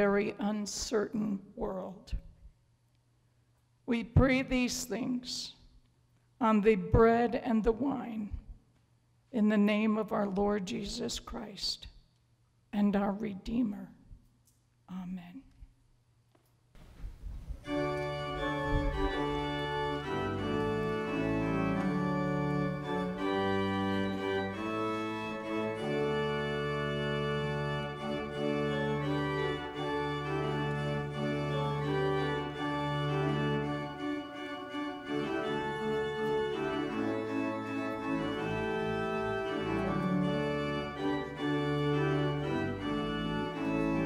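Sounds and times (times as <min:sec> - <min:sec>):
church organ chords: 0:17.6 - 0:44.0.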